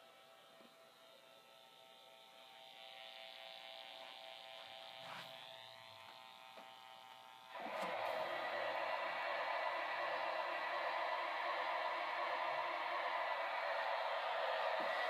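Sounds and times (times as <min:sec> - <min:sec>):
model train running: 0:07.6 - 0:15.0
rising whine: 0:07.6 - 0:15.0.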